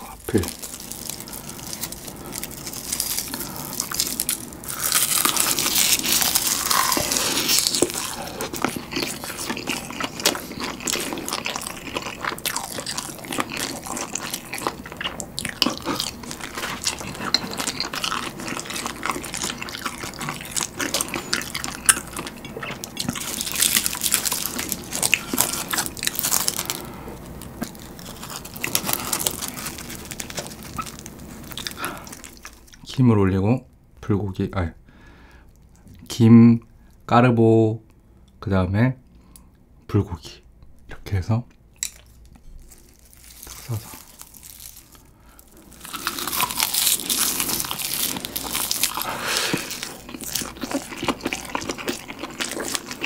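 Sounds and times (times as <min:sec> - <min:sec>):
crisp crunching and crackling: 0:00.0 - 0:32.9, 0:41.8 - 0:53.0
wet chewing: 0:00.0 - 0:32.9, 0:41.8 - 0:53.0.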